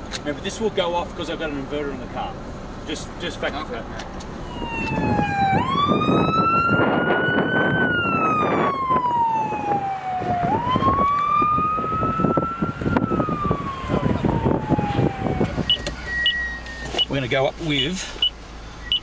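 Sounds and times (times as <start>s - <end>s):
truck driving on wet road: 0.0s - 19.0s
fire truck siren wailing: 4.4s - 16.9s.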